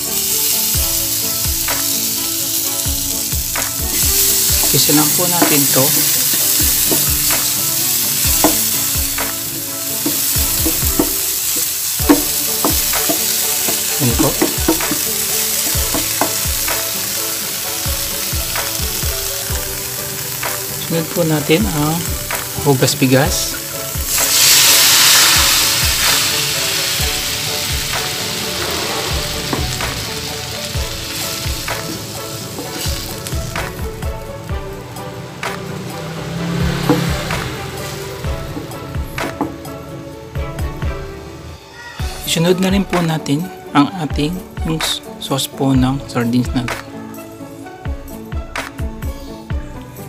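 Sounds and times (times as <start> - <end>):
food sizzling in a frying pan: 0.0 - 34.5, 35.2 - 39.5
wooden spatula knocking on pan: 3.8 - 7.6, 8.2 - 17.0, 29.2 - 30.1, 36.7 - 37.6, 38.3 - 39.6.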